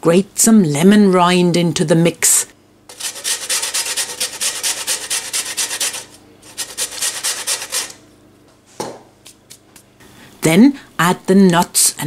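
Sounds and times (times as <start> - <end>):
lemon grating on metal grater: 2.9 - 8.0.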